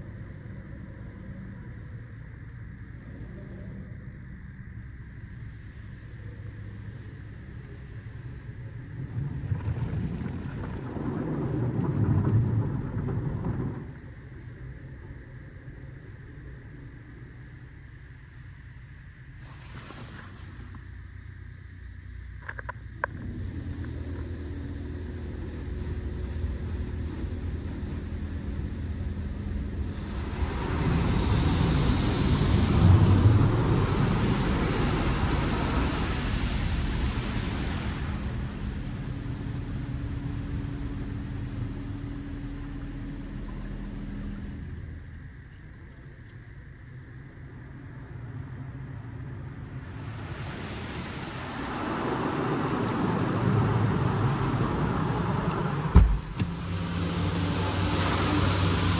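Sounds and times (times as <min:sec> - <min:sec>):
rushing hiss of spray: 0:19.4 - 0:20.9, 0:29.9 - 0:39.0, 0:50.0 - 0:58.9
motor and pump hum: 0:22.2 - 0:46.4, 0:47.4 - 0:58.9.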